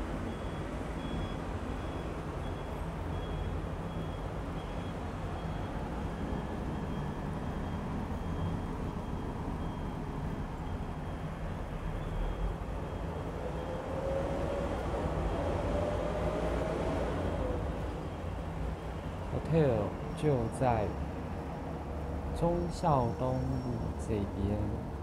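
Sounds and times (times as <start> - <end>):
city traffic rumble: 0.0 - 25.0
faint high-pitched beep: 0.3 - 5.7, 6.3 - 13.0, 22.4 - 24.9.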